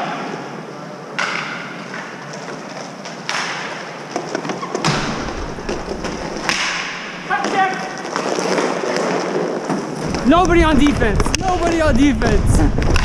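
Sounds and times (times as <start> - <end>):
skate blades scraping ice: 1.8 - 11.8
sharp knocks: 4.8 - 7.7.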